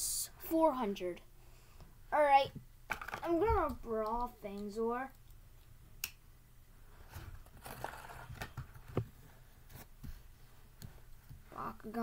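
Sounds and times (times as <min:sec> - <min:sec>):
packaging rustling: 0:07.4 - 0:08.9.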